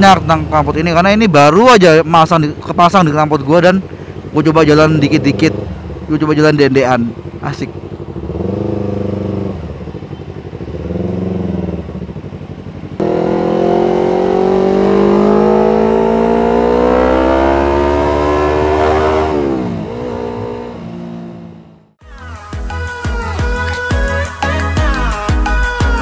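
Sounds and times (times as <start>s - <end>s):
motorcycle engine accelerating: 2.4s - 22.0s.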